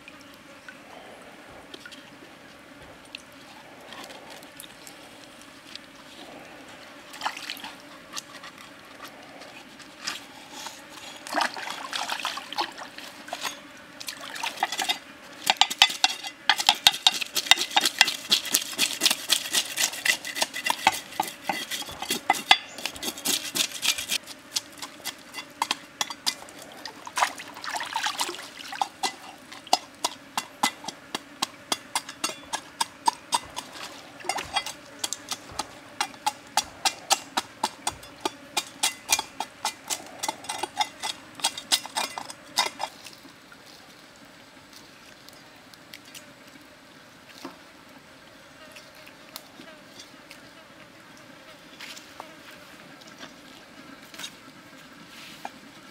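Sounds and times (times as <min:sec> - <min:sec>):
faint trickle of stream water: 0:00.0 - 0:16.4, 0:17.1 - 0:50.5
cleaver scraping fish scales: 0:03.4 - 0:12.0, 0:13.0 - 0:13.7, 0:14.4 - 0:43.2.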